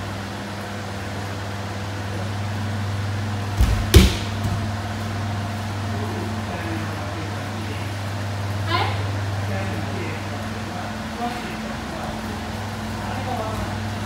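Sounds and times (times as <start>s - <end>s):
steady low hum: 0.0s - 14.0s
sharp slap on mat: 3.6s - 4.6s
body thudding onto mat: 3.6s - 4.7s.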